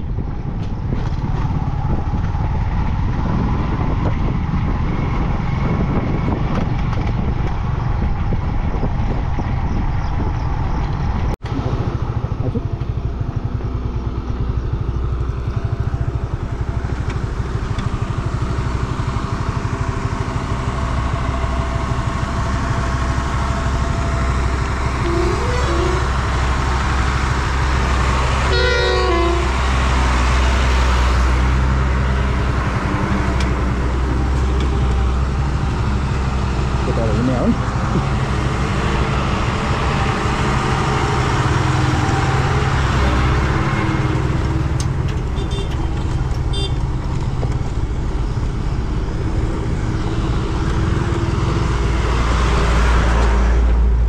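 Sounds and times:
motorcycle engine running: 0:07.2 - 0:28.0
vehicle horn: 0:25.0 - 0:26.2, 0:28.4 - 0:29.6, 0:45.4 - 0:45.9, 0:46.5 - 0:46.8.

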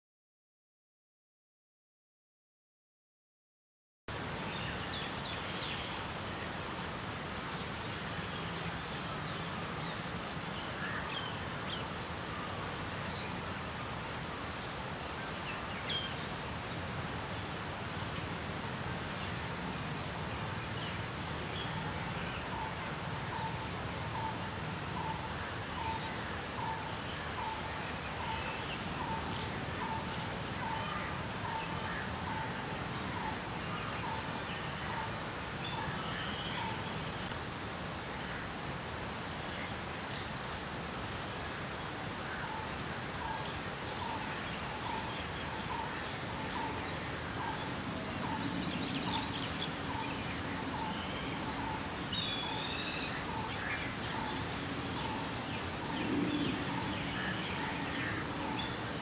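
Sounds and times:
background hiss: 0:04.1 - 0:59.0
birds chirping and trilling: 0:14.5 - 0:37.4, 0:38.4 - 0:59.0.

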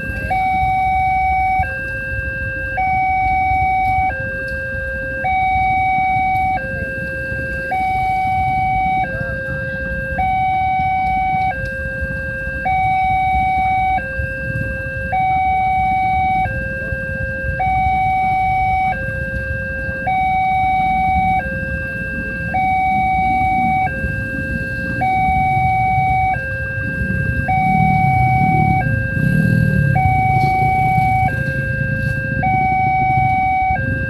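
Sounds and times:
two-tone level crossing alarm: 0:00.0 - 0:34.0.

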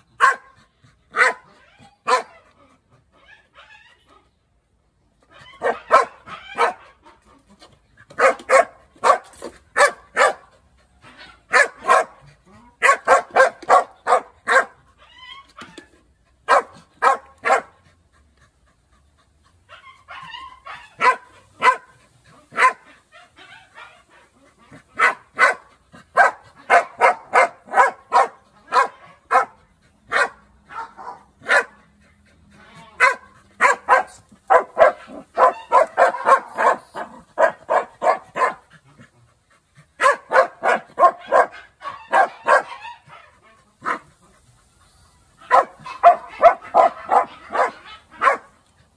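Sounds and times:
dog barking: 0:00.2 - 0:02.4, 0:05.6 - 0:06.8, 0:08.2 - 0:10.5, 0:11.5 - 0:12.2, 0:12.8 - 0:14.8, 0:16.5 - 0:17.7, 0:20.1 - 0:21.9, 0:22.5 - 0:24.0, 0:25.0 - 0:31.8, 0:33.0 - 0:38.6, 0:40.0 - 0:44.0, 0:45.4 - 0:48.5.

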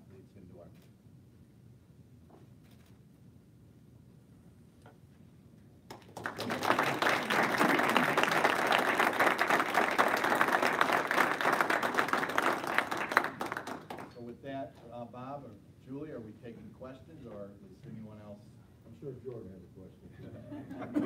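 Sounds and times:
people clapping: 0:05.9 - 0:14.2.

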